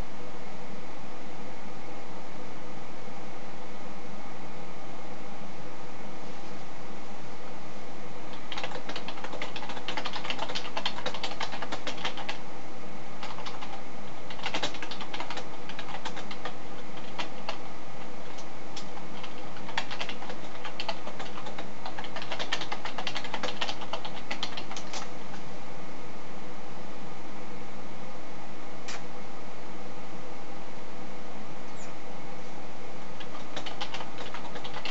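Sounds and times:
steady background hum: 0.0s - 34.9s
keyboard typing clicks: 8.3s - 12.4s, 13.2s - 17.6s, 18.2s - 25.4s, 33.2s - 34.9s.

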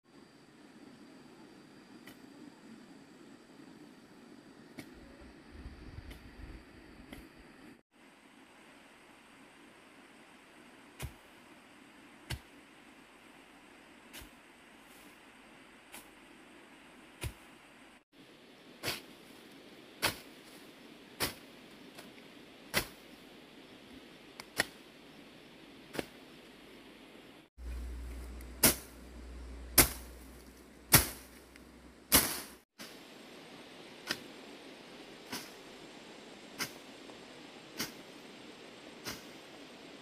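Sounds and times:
low rumble: 27.6s - 32.6s
blade slashing grass: 27.6s - 33.0s, 36.6s - 36.8s.

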